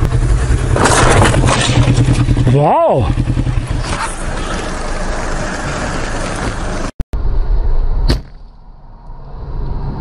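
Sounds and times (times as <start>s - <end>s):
wind and motorcycle noise: 0.0s - 7.7s
road noise inside a car: 3.8s - 10.0s.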